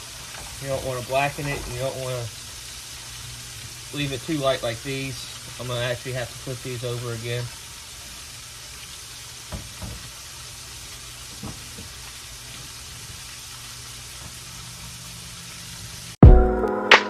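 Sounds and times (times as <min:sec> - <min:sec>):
bread sizzling in a skillet: 0:00.0 - 0:16.2
music: 0:16.2 - 0:17.0.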